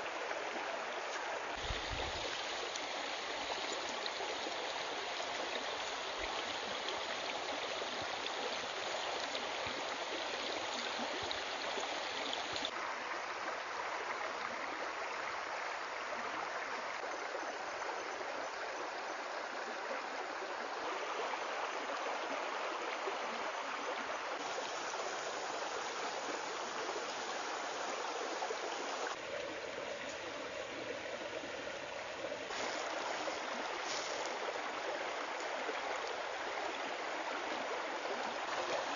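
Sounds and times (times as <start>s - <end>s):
steady rushing hiss: 24.4s - 29.2s, 32.5s - 35.4s.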